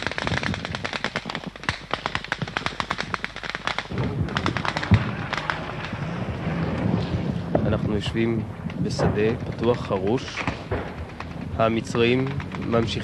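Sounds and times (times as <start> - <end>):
rapid gunfire: 0.0 - 6.6, 8.9 - 13.0
low rumble: 3.9 - 13.0.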